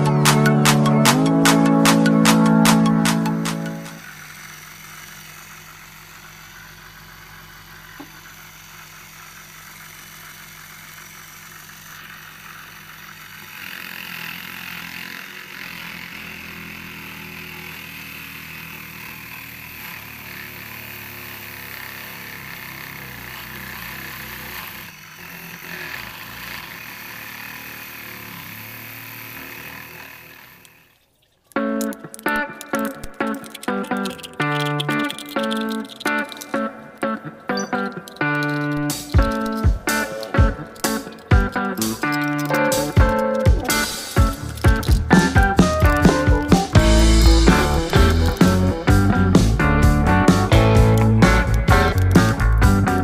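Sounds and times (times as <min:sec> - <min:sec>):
small motor humming: 0:00.0 - 0:53.0
coconut grating rasp: 0:00.2 - 0:31.0, 0:37.7 - 0:53.0.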